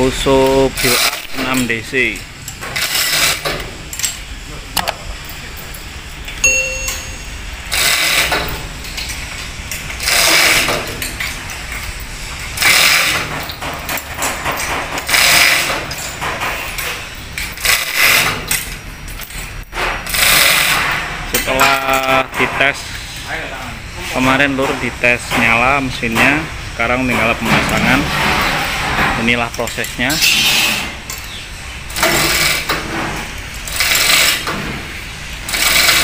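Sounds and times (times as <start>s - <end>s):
ringing metallic ding: 6.4s - 7.6s.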